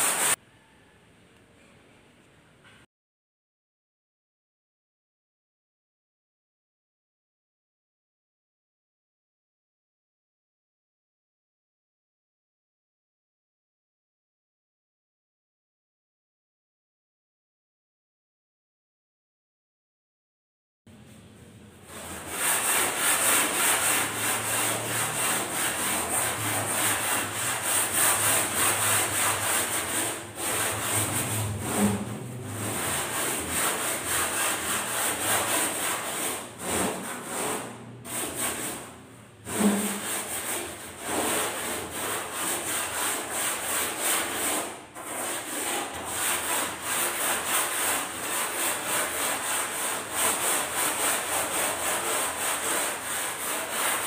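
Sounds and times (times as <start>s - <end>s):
sanding block rasping on foam: 0.0s - 0.4s, 21.9s - 54.0s.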